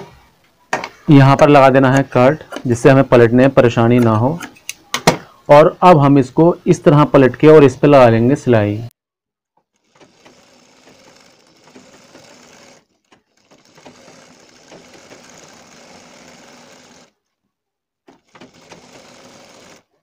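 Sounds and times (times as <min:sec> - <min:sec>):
sewing machine stitching: 0:09.8 - 0:17.2, 0:18.1 - 0:20.0.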